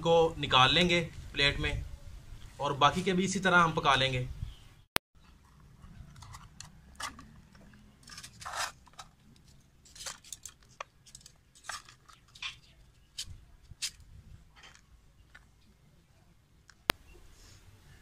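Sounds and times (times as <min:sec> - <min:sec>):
fork scraping metal skewers: 0:07.9 - 0:09.2.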